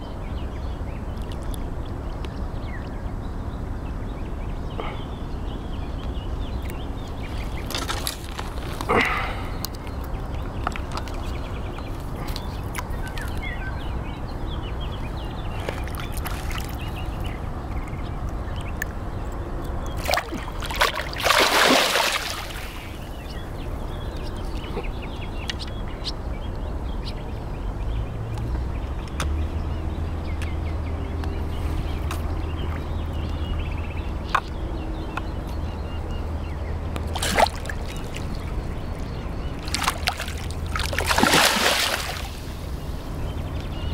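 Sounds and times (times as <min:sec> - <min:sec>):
fish thrashing and splashing: 0:07.3 - 0:10.0, 0:15.5 - 0:17.0, 0:20.0 - 0:23.2, 0:37.0 - 0:38.6, 0:39.5 - 0:42.8.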